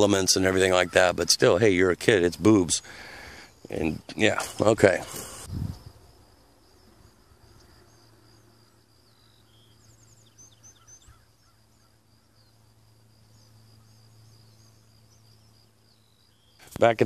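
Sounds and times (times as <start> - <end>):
faint high-pitched hum: 0.0 - 17.0
small bird chirping: 6.7 - 17.0.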